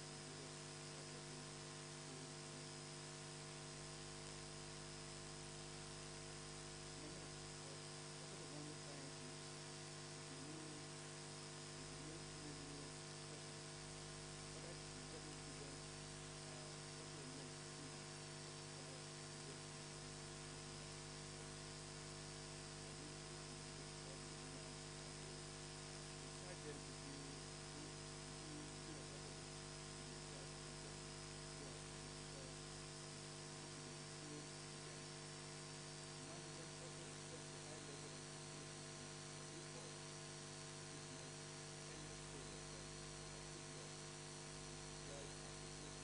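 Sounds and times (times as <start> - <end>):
faint mains hum: 0.0 - 46.0.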